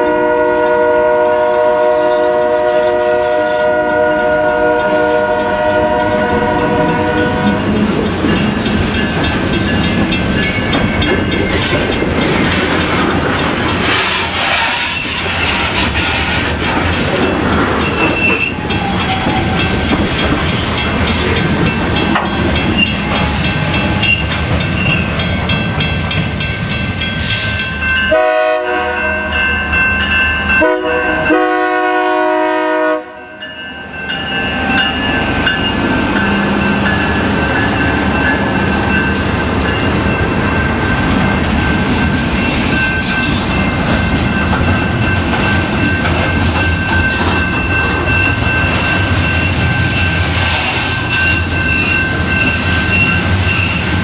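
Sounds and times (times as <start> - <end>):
locomotive air horn: 0.0 - 7.7, 28.1 - 29.3, 30.6 - 33.4
train rumbling and clattering past: 0.0 - 54.0.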